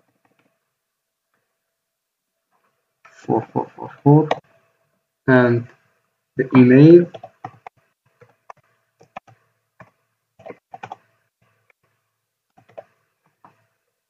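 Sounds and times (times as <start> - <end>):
typing on a computer keyboard: 7.1 - 11.1, 12.5 - 13.6.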